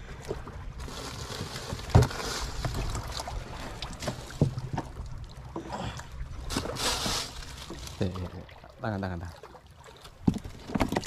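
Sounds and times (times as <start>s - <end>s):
water rumbling against hull: 0.0s - 11.0s
knocks and clatter on wooden deck: 10.2s - 11.0s.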